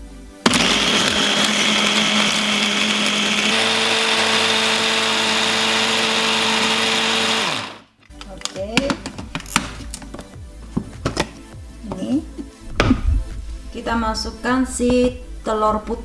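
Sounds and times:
food chopper motor whine: 0.4s - 7.8s.

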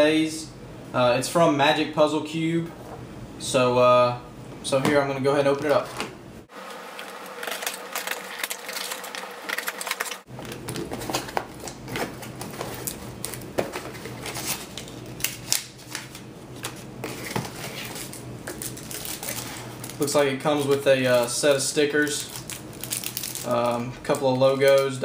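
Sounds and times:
packing material crackling: 6.5s - 25.0s.

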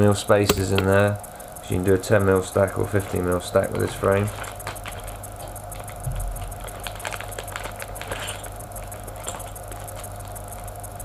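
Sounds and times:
steady low hum: 0.0s - 11.0s
plastic bag crinkling: 5.8s - 10.4s.

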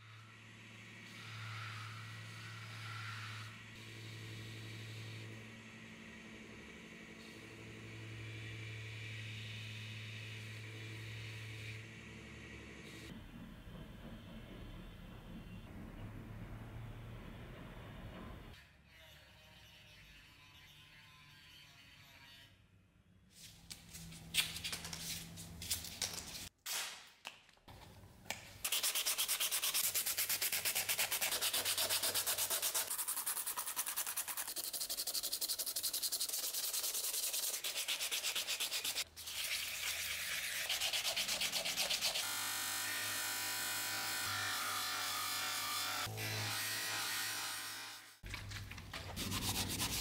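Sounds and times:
hand sanding with abrasive paper: 28.6s - 42.3s, 49.1s - 50.0s.

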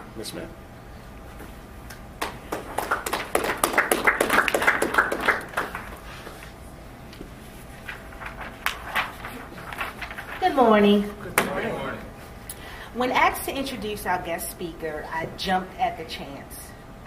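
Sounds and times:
small audience applauding: 2.2s - 6.3s.

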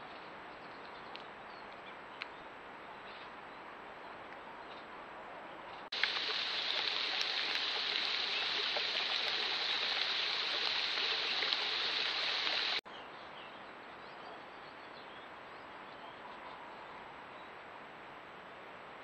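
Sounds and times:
hail pattering on leaves: 6.0s - 12.8s.

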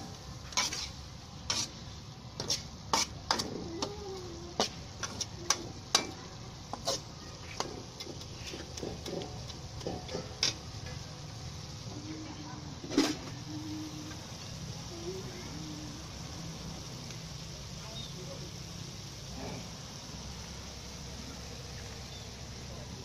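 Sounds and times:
metal spatula scraping wok: 0.0s - 11.1s, 12.8s - 13.5s
food sizzling: 0.0s - 23.0s.

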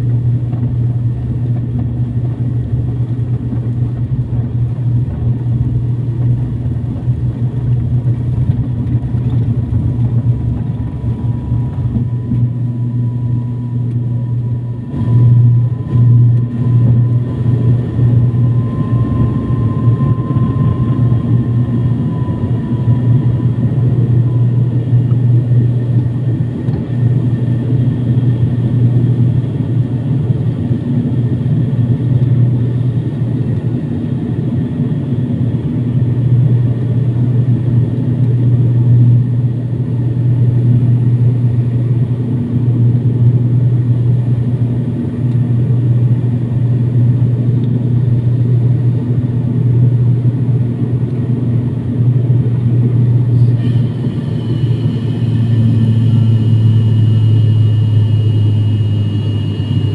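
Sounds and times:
thin high whine: 0.0s - 36.7s, 52.8s - 59.9s
propeller engines droning: 0.0s - 59.9s.

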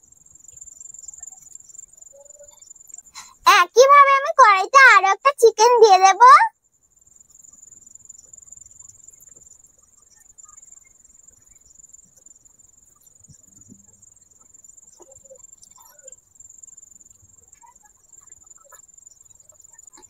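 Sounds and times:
crickets trilling: 0.0s - 3.3s.

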